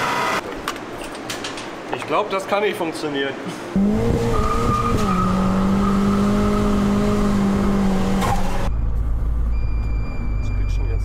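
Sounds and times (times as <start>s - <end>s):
car engine revving: 3.7s - 9.4s.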